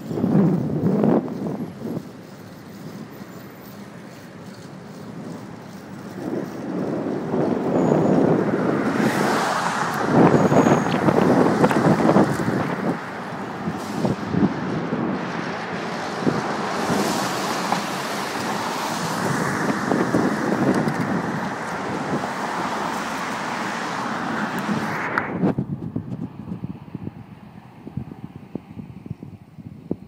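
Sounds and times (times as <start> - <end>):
street traffic: 0.0 - 30.0
wind buffeting microphone: 0.0 - 30.0.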